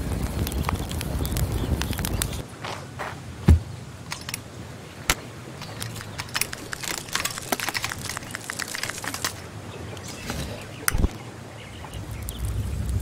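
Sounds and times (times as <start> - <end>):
wood clicking and crunching: 0.0 - 2.4, 5.1 - 11.2
heavy thump: 3.5 - 3.7
sharp wood snap: 5.1 - 9.4.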